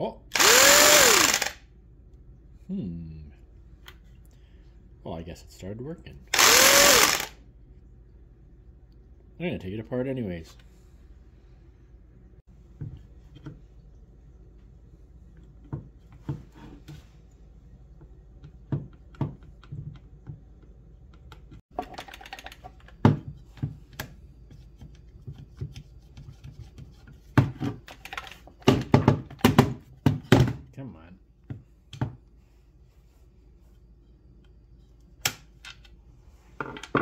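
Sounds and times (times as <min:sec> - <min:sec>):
screwdriver clicking on screws: 0:00.3 - 0:01.6, 0:06.3 - 0:07.3.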